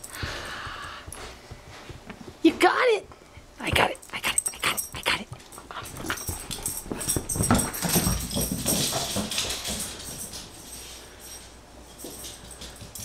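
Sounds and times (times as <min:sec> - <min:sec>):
dog claws scrabbling on hardwood floor: 0:05.4 - 0:10.6.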